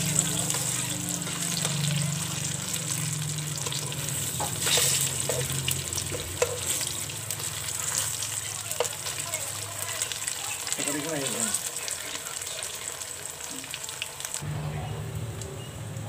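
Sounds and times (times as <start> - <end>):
fritters sizzling in hot oil: 0.0 - 16.0
metal tongs clicking on pan: 4.6 - 6.8.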